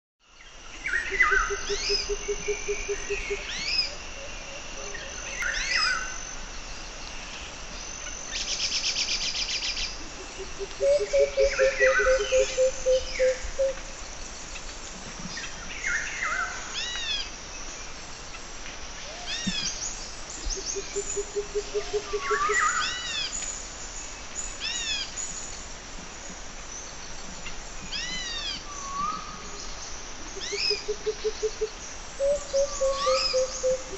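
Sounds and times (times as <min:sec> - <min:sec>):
low pulsing hum: 0:00.4 - 0:16.8
birds whistling calls: 0:10.8 - 0:13.7, 0:32.2 - 0:33.9.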